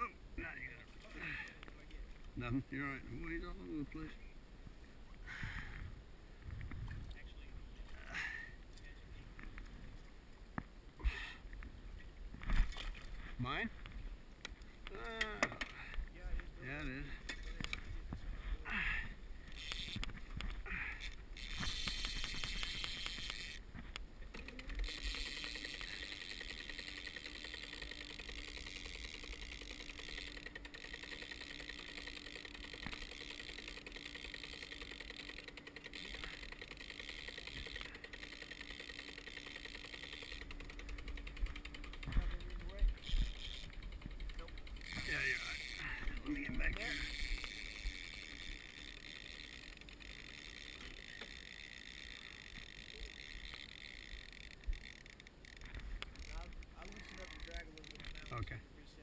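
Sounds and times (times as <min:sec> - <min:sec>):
outboard motor running: 0:14.8 - 0:58.7.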